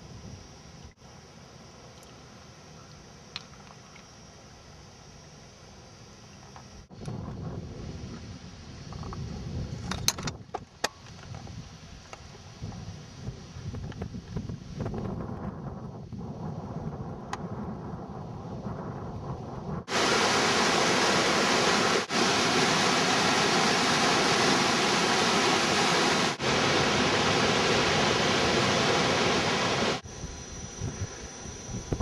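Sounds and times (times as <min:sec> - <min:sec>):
rushing water hiss: 0:19.9 - 0:30.0.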